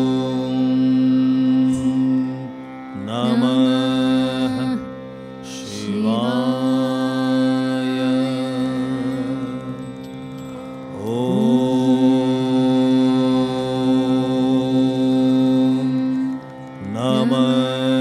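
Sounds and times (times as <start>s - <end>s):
steady drone: 0.0s - 18.0s.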